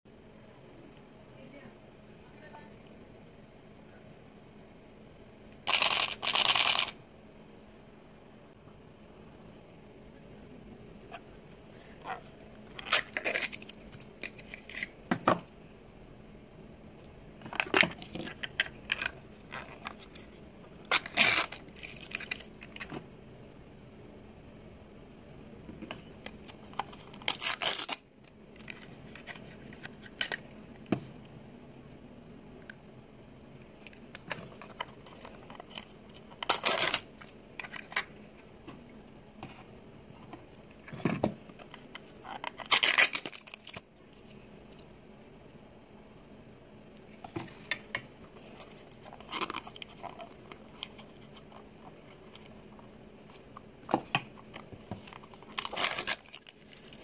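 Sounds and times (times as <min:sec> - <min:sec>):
foil bags crinkling and tearing: 0:26.9 - 0:28.0, 0:35.6 - 0:37.2, 0:42.4 - 0:43.8, 0:55.0 - 0:57.0.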